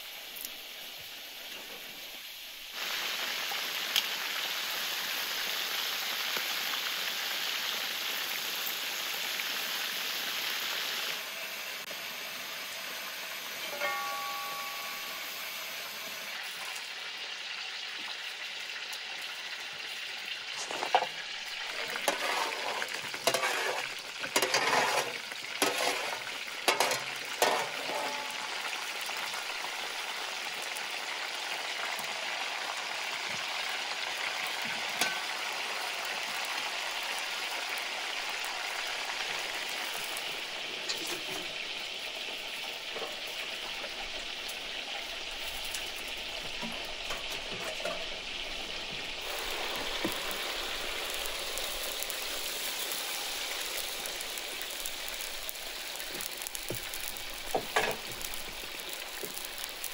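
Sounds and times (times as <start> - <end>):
potatoes sizzling in hot fat: 0.0 - 59.9.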